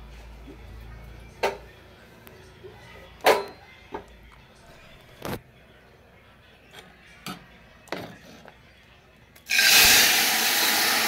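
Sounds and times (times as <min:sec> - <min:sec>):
hissing sizzle in hot oil: 0:09.5 - 0:11.0.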